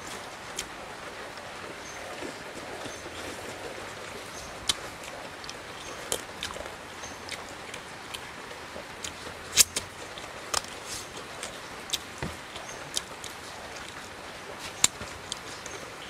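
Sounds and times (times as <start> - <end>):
chewing and sucking: 1.7 - 8.3
lip smacks: 2.0 - 6.7.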